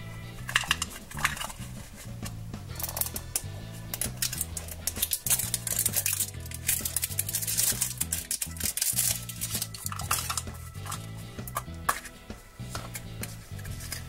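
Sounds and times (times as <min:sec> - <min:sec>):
background music with bass line: 0:00.0 - 0:14.0
plastic wrap crinkling: 0:02.8 - 0:11.6.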